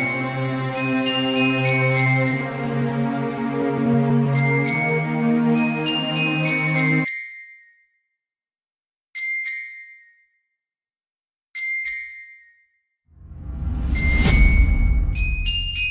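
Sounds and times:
electronic music: 0.0s - 7.0s.

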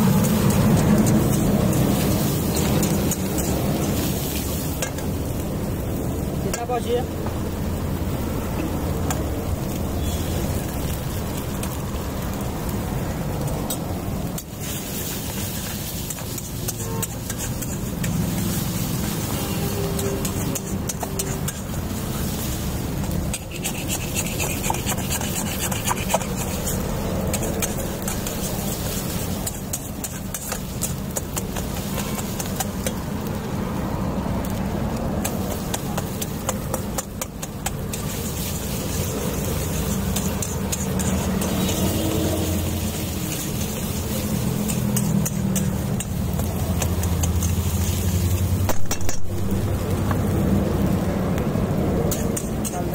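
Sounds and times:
metal spatula scraping iron pan: 15.0s - 22.4s, 23.3s - 33.0s, 35.3s - 48.0s.

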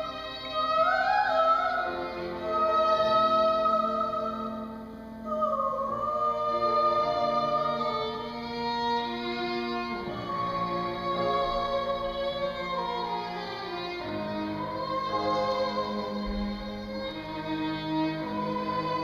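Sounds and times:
violin and cello accompaniment: 0.0s - 19.0s
soprano singing held notes: 1.3s - 8.3s.

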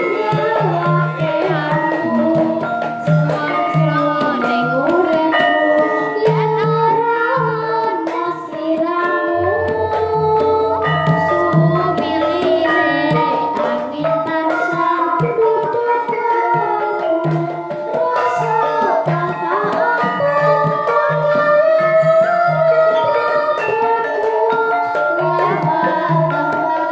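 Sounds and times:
drum strokes: 0.0s - 21.4s
gamelan music: 0.0s - 26.9s
girl singing into microphone: 0.0s - 26.9s.

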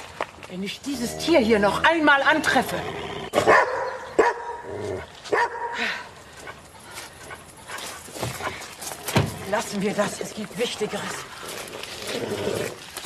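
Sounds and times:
dog barking: 3.4s - 4.7s, 5.3s - 5.8s.

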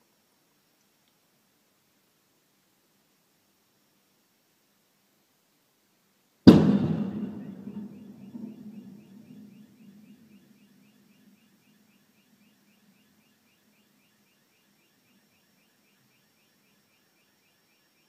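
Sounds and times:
car explosion blast: 6.5s - 9.2s
low rumbling echo: 6.5s - 9.5s.

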